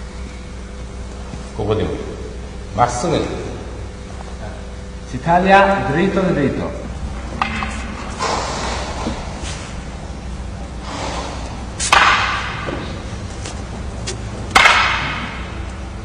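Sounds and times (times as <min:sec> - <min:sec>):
wooden swords clacking: 0:07.3 - 0:08.2, 0:11.8 - 0:15.8
swords swishing through air: 0:11.8 - 0:12.4.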